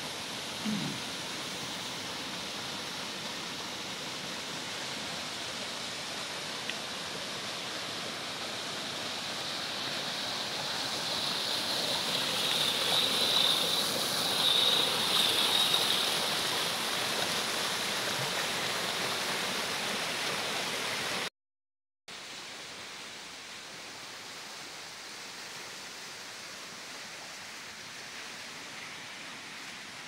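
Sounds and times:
river rushing over rocks: 0.0s - 21.3s.

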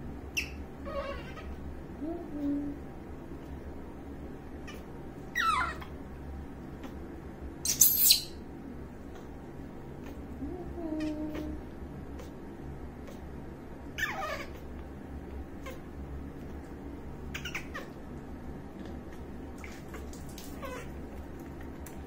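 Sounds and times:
baby monkey squealing: 0.3s - 1.6s, 4.7s - 5.9s, 7.6s - 8.4s, 13.9s - 14.7s, 17.3s - 18.0s, 20.6s - 20.9s.

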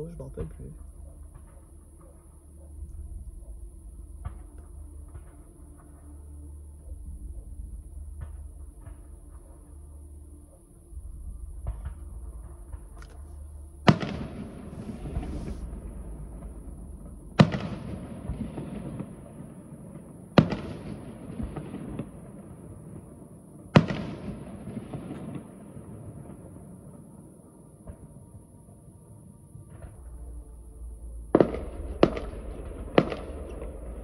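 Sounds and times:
fireworks bangs: 13.9s - 22.4s.

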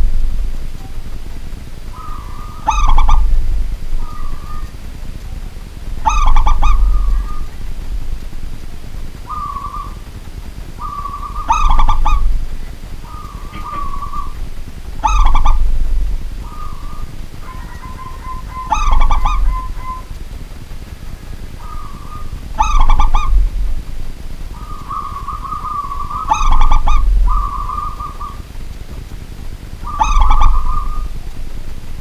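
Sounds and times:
dove cooing: 1.7s - 8.1s, 8.8s - 20.2s, 20.9s - 28.6s, 29.7s - 31.3s.

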